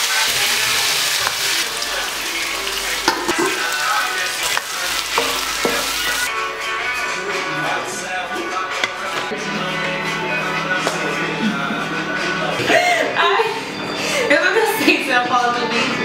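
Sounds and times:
chicken sizzling in a wok: 0:00.0 - 0:06.3.

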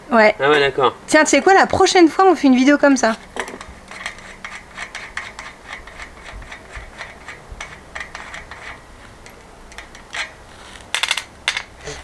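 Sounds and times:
light metallic clicks from wheel hub: 0:09.3 - 0:10.2.

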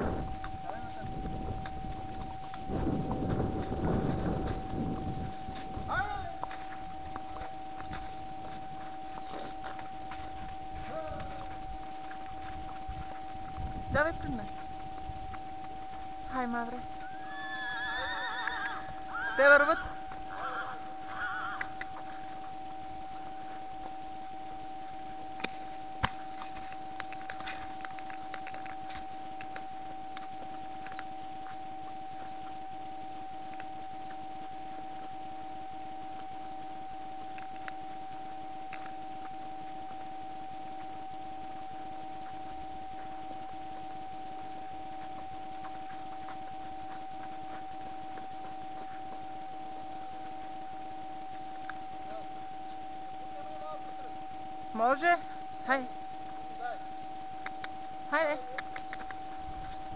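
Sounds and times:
horse hooves on snow: 0:00.0 - 0:54.2, 0:54.8 - 0:59.9
faint ticks: 0:00.0 - 0:59.9
high electronic whine: 0:00.0 - 0:59.9.

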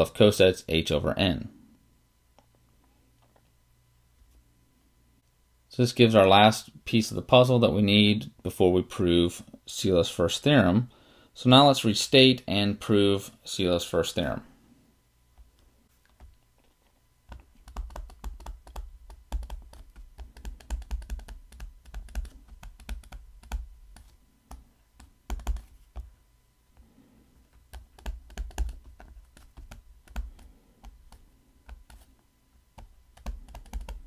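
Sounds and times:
stylus tapping on tablet screen: 0:17.3 - 0:26.1, 0:27.6 - 0:32.1, 0:32.8 - 0:34.0.

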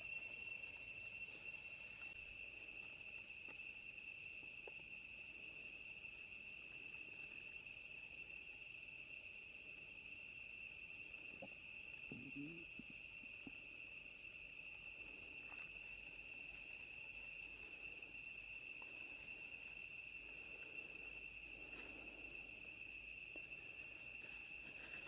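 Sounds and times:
insect chorus: 0:00.0 - 0:25.0.

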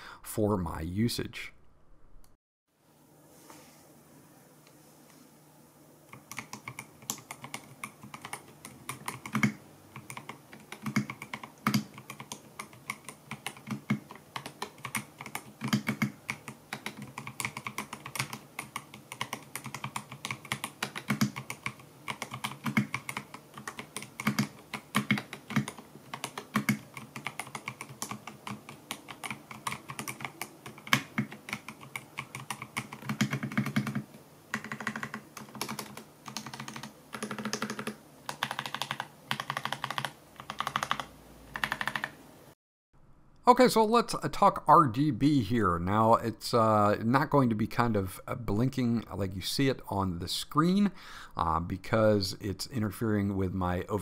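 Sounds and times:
mechanical keyboard typing: 0:06.1 - 0:42.2.

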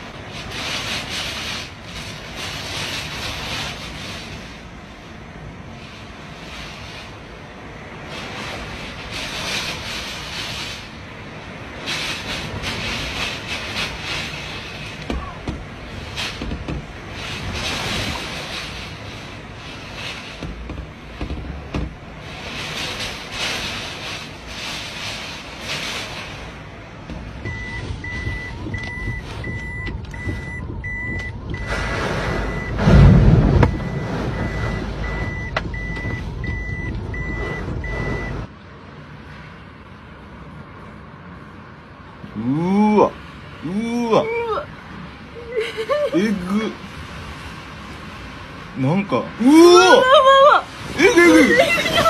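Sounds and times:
wind rushing and gusting: 0:00.0 - 0:42.4, 0:44.2 - 0:52.0
electronic alarm beeping: 0:27.5 - 0:31.8, 0:32.4 - 0:32.8, 0:33.6 - 0:38.5.

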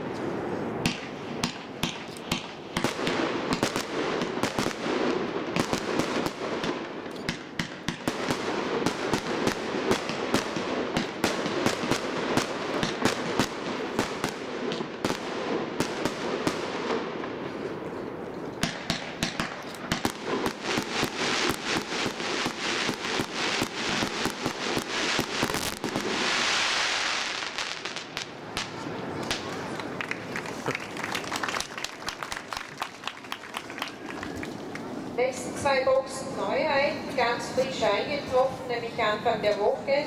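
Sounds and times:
firework shots banging: 0:00.8 - 0:17.8, 0:18.5 - 0:29.8
firework hiss: 0:19.9 - 0:28.3.

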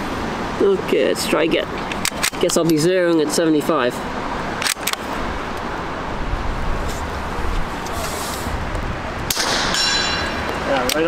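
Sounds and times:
rifle bolt clicking closed: 0:01.9 - 0:02.8, 0:04.6 - 0:05.0
sharp rifle shot: 0:09.3 - 0:10.2.

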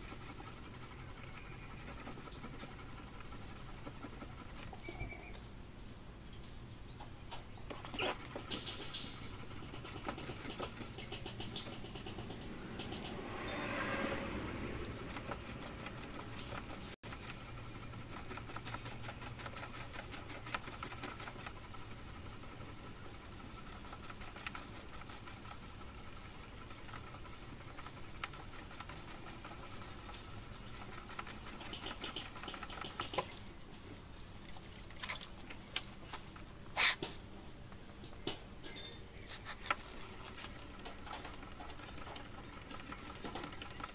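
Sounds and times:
sandpaper scratching: 0:00.0 - 0:05.2, 0:07.7 - 0:33.4, 0:36.7 - 0:37.0.

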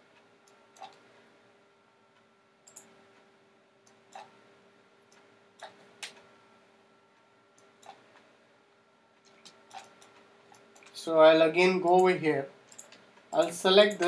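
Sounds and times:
steady low hum: 0:00.0 - 0:14.0
computer mouse clicking: 0:00.2 - 0:01.2, 0:02.6 - 0:03.0, 0:03.8 - 0:04.4, 0:05.1 - 0:06.3, 0:07.6 - 0:08.3, 0:09.2 - 0:11.0.

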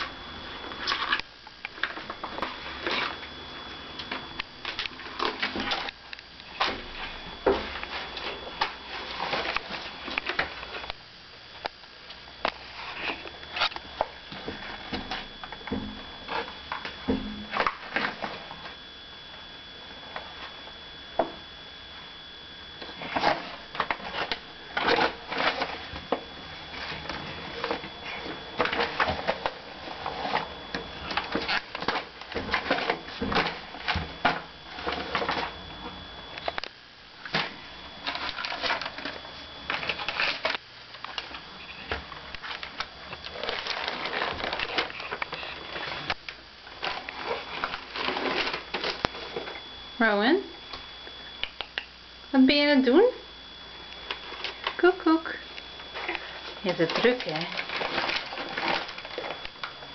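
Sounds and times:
paper crumpling and tearing: 0:41.6 - 0:46.2.

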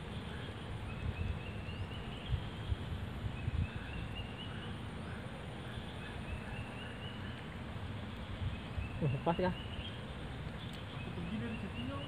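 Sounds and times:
wind buffeting microphone: 0:00.0 - 0:04.4.

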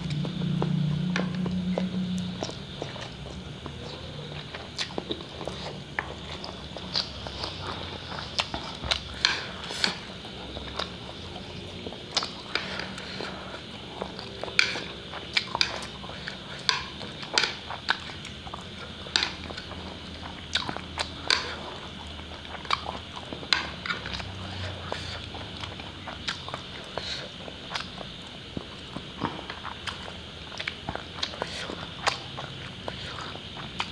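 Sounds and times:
wet chewing and slurping: 0:00.0 - 0:33.9.

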